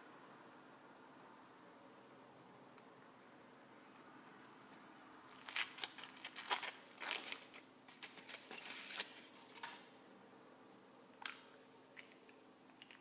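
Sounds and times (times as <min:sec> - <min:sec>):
foil wrapper crinkling: 0:05.3 - 0:09.9.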